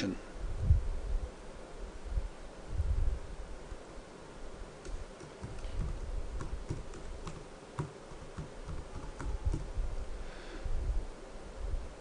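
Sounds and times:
typing on computer keyboard: 0:04.8 - 0:09.7.

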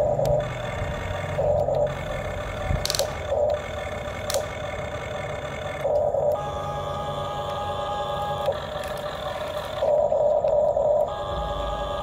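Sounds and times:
toy electric motors whining: 0:00.0 - 0:12.0
sharp clicks: 0:02.7 - 0:03.6, 0:04.2 - 0:04.6.

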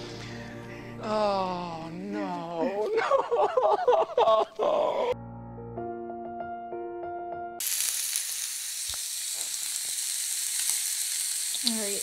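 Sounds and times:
steak sizzling in frying pan: 0:07.6 - 0:12.0.

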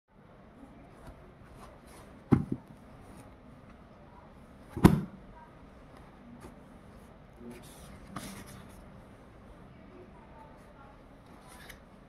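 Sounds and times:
book thump: 0:02.3 - 0:02.6, 0:04.8 - 0:05.2.

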